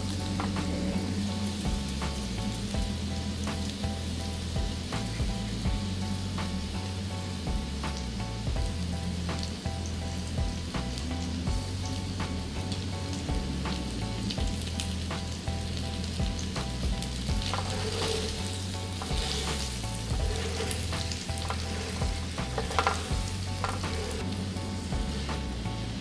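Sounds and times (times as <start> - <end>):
potatoes sizzling in a frying pan: 0.0 - 26.0
spatula stirring and clattering: 16.3 - 25.8.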